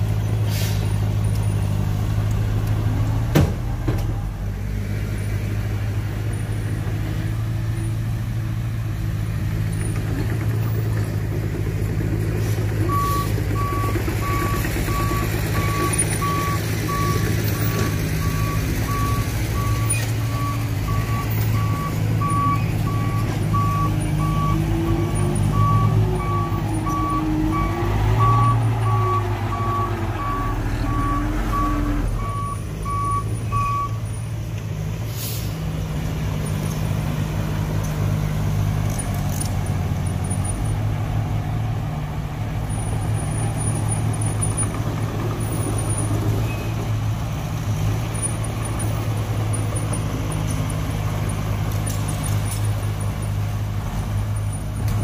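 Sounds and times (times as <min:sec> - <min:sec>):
heavy diesel engine running: 0:00.0 - 0:55.0
reversing alarm beeping: 0:12.9 - 0:34.1.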